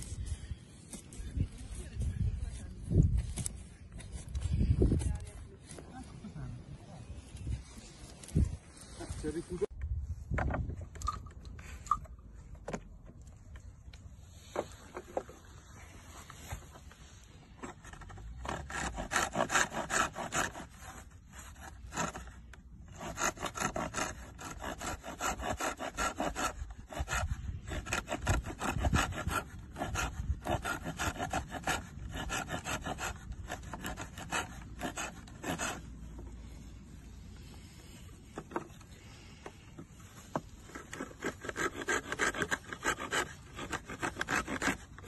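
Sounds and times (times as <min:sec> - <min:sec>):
knife sawing wooden branch: 0:14.2 - 0:45.0.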